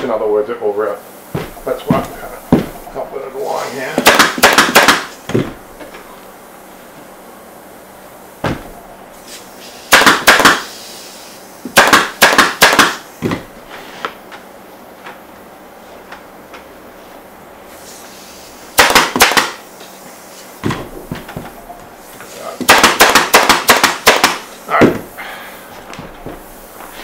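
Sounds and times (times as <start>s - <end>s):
pneumatic staple gun firing: 4.0s - 5.2s, 9.9s - 10.8s, 11.7s - 13.4s, 18.8s - 19.6s, 22.6s - 24.5s.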